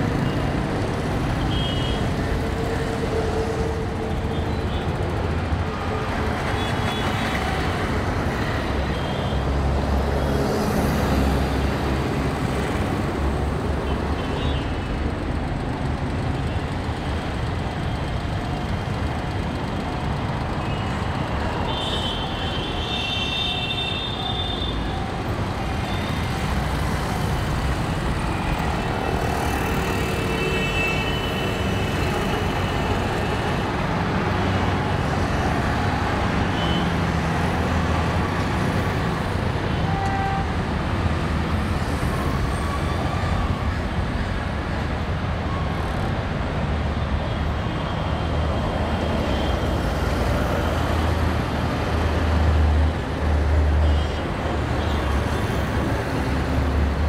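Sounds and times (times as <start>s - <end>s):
heavy road traffic roar: 0.0s - 57.0s
vehicle horns: 1.4s - 2.1s, 21.7s - 25.0s, 36.5s - 37.0s, 39.7s - 40.5s.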